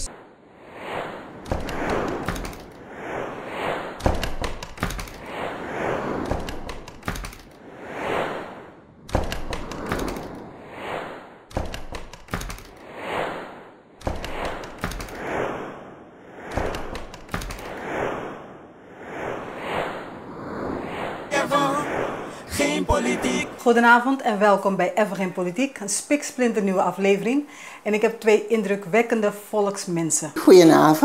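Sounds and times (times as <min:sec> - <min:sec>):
sharp knocks or hits: 0:14.0 - 0:15.1
whoosh sound effects: 0:20.7 - 0:23.6.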